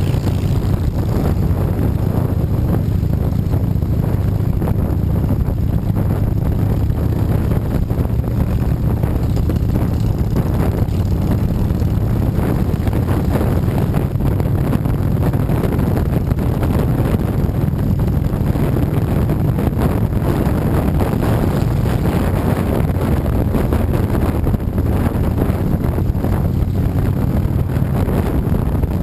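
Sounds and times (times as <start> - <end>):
motorcycle engine rumble: 0.0 - 29.0
wind rushing over microphone: 0.0 - 29.0.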